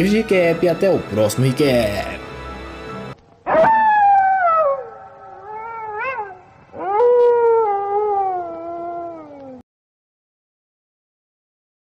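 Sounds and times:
wolf howling: 0:03.4 - 0:09.6.

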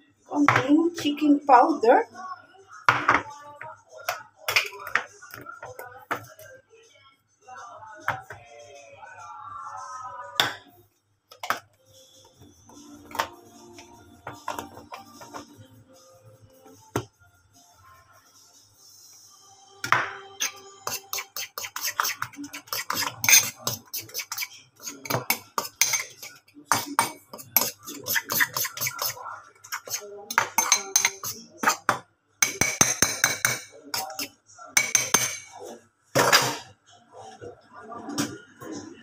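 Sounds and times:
spoon clinking against ceramic bowl: 0:20.4 - 0:35.6.

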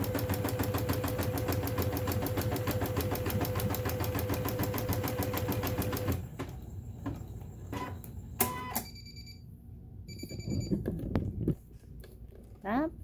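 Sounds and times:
embroidery machine stitching: 0:00.0 - 0:06.3
electronic beeps: 0:10.1 - 0:10.8.

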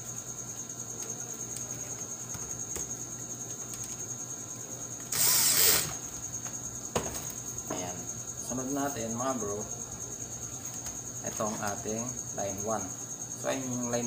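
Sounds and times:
steady high whine: 0:04.6 - 0:06.2
brief harsh burst: 0:05.1 - 0:06.0.

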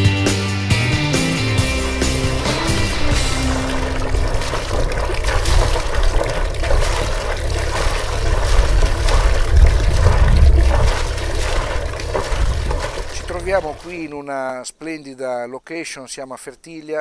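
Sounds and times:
water sounds: 0:00.8 - 0:14.4
heavy low rumble: 0:01.2 - 0:14.0
steady rushing noise: 0:01.3 - 0:13.9.

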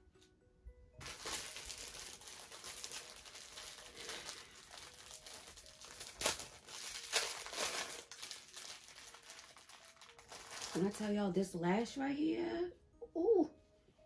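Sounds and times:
plastic packet crinkling: 0:01.0 - 0:11.2.

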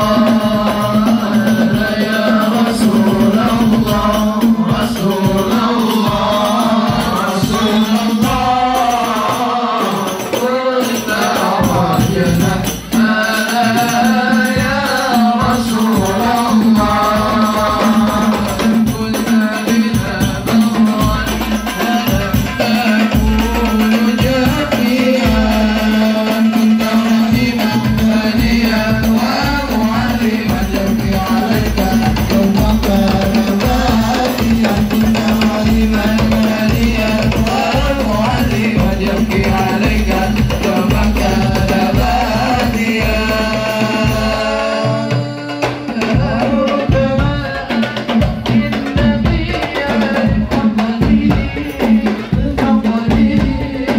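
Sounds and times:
boy singing: 0:00.0 - 0:53.9
deep drum beats: 0:00.0 - 0:53.9
frame drums beating: 0:00.0 - 0:53.9.

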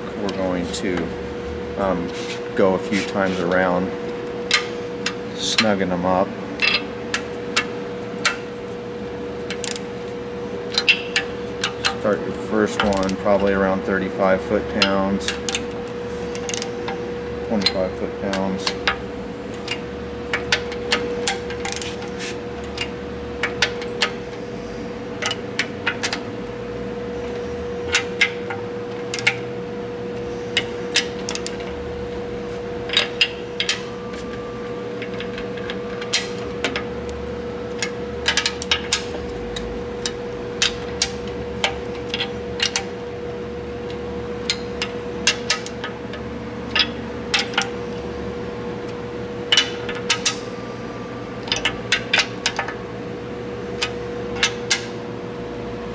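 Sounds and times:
steady hum: 0:00.0 - 0:55.9
torque wrench ratcheting and clicking: 0:09.5 - 0:09.9, 0:16.3 - 0:17.0, 0:19.6 - 0:22.0, 0:29.0 - 0:29.4, 0:30.6 - 0:31.7.

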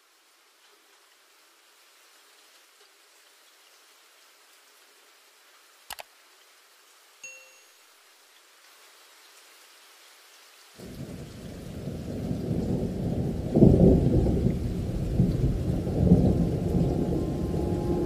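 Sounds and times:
muffled rain: 0:00.0 - 0:18.0
thunder rumbling: 0:10.8 - 0:18.0.

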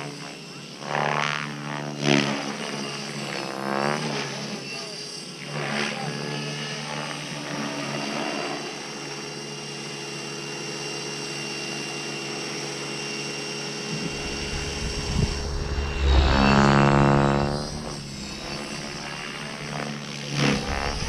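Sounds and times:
model helicopter motor whine: 0:00.0 - 0:21.0
low rumble: 0:13.9 - 0:21.0.

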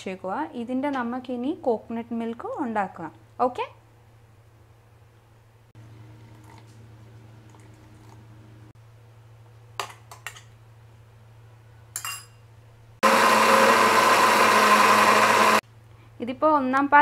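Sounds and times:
spoon clinking on metal jar: 0:12.0 - 0:12.4
electric mixer grinder running: 0:13.0 - 0:15.6.

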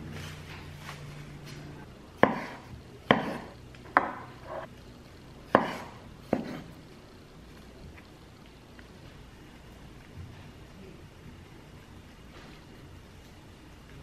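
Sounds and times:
knife chopping on wooden board: 0:02.2 - 0:04.7, 0:05.5 - 0:06.7.

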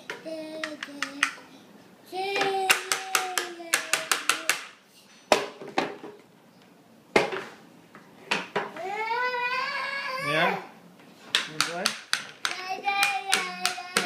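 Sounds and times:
toddler singing: 0:00.1 - 0:01.4, 0:02.1 - 0:04.6, 0:08.8 - 0:10.2, 0:12.5 - 0:14.0.

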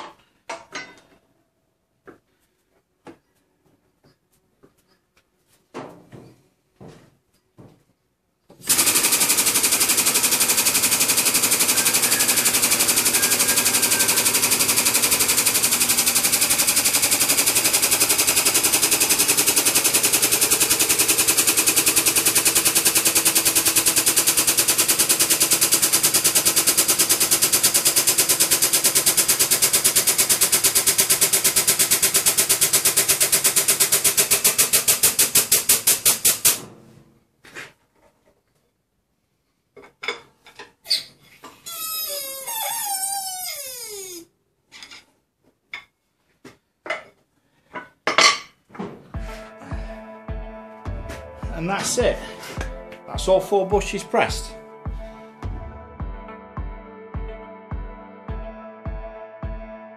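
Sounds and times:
air pump rapid chatter: 0:08.7 - 0:36.6.

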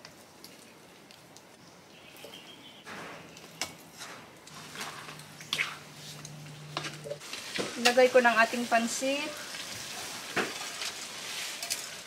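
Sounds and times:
bird chirp: 0:01.6 - 0:03.8
broth simmering in a wok: 0:04.5 - 0:12.0.

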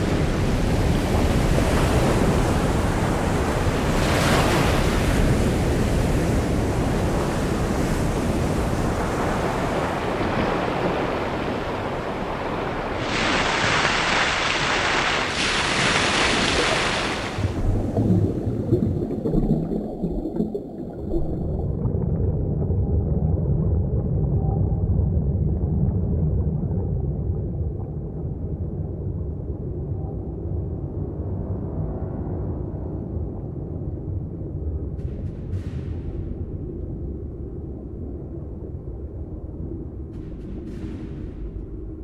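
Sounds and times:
wind: 0:00.0 - 0:42.0
waves crashing on rocks: 0:08.5 - 0:17.6
muffled underwater rumble: 0:17.4 - 0:42.0.

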